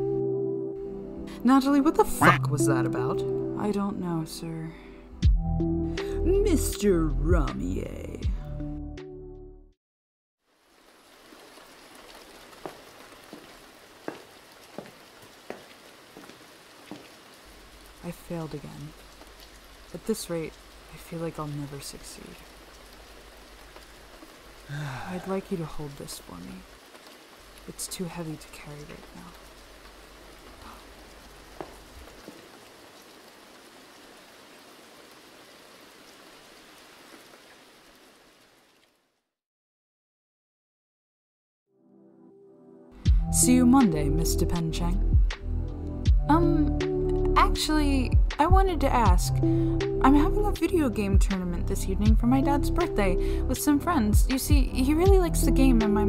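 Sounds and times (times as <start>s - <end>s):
steady rain: 10.4s - 39.3s, 46.1s - 56.0s.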